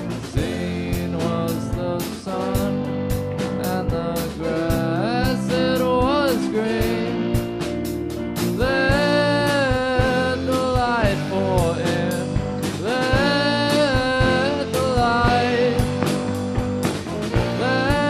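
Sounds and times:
drum kit: 0:00.0 - 0:18.0
electric guitars: 0:00.0 - 0:18.0
sliding melody line: 0:03.6 - 0:18.0.

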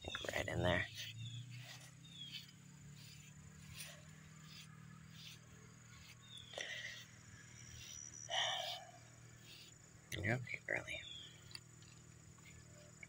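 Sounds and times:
steady low hum: 0:00.0 - 0:13.0
high insect whine: 0:00.1 - 0:13.0
grooming rake swishing through fur: 0:00.8 - 0:09.8.

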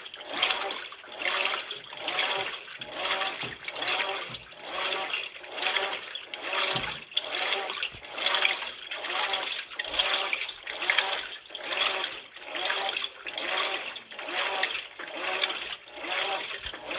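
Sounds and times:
washing machine motor whine: 0:00.0 - 0:16.9
water swishing in washing machine: 0:00.0 - 0:16.9.

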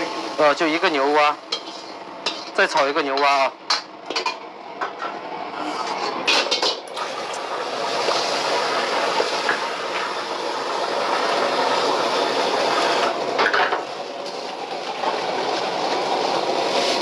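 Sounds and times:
water sizzling in hot wok: 0:00.0 - 0:02.8, 0:06.9 - 0:17.0
gas burner roaring: 0:00.0 - 0:17.0
brush scraping metal wok: 0:01.5 - 0:03.0.

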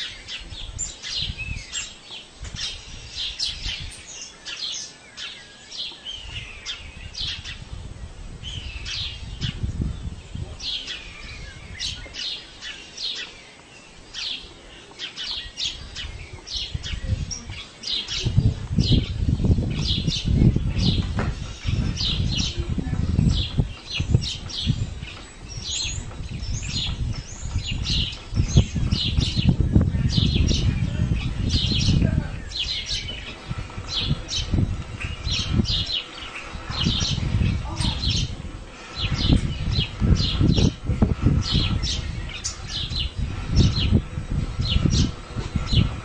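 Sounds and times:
small birds chirping: 0:00.0 - 0:46.0
low uneven rumbling: 0:14.5 - 0:46.0.

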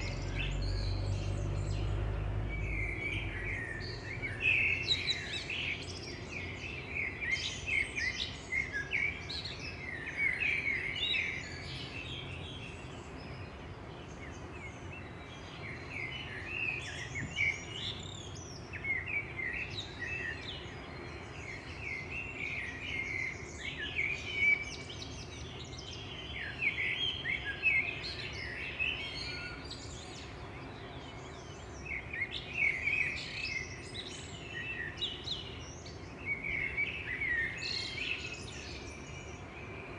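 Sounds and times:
faint outdoor ambience: 0:00.0 - 0:39.9
songbirds chirping and singing: 0:00.0 - 0:39.9.

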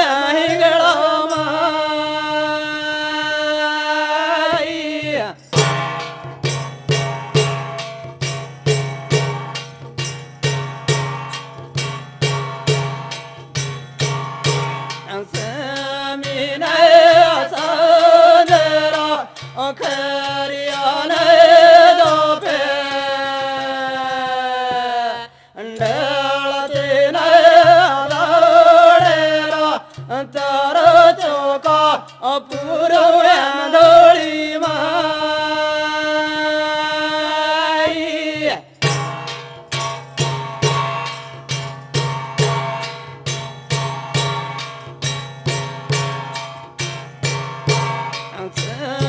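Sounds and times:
hand drum beat: 0:05.0 - 0:25.0, 0:25.8 - 0:35.4, 0:37.8 - 0:49.0
brass cymbals: 0:05.5 - 0:15.4, 0:38.7 - 0:49.0.

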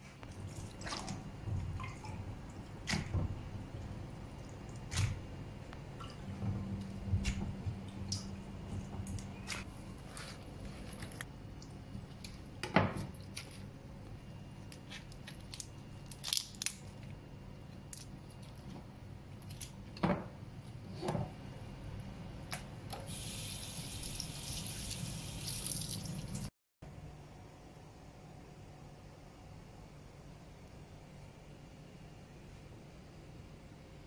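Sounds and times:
low steady hum: 0:00.0 - 0:25.4.

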